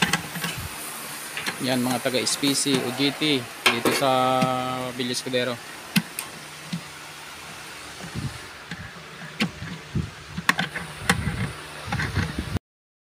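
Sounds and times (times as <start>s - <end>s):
hand tools clicking and scraping metal: 0.0s - 0.6s, 1.3s - 4.9s, 7.9s - 12.4s.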